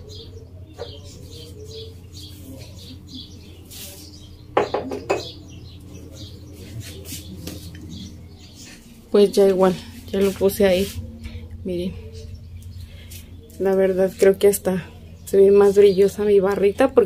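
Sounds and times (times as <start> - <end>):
small birds chirping: 0.0 - 17.0
steady low hum: 0.0 - 17.0.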